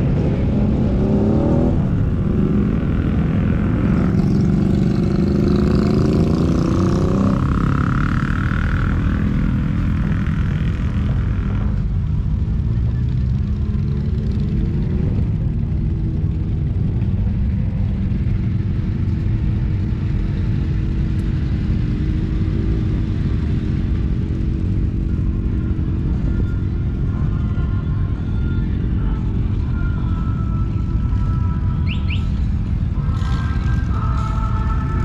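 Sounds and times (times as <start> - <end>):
motorcycle engine rumble: 0.0 - 35.0.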